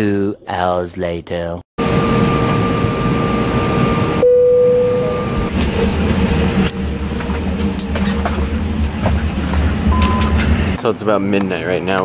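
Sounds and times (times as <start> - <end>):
steady vehicle whine: 1.8 - 10.8.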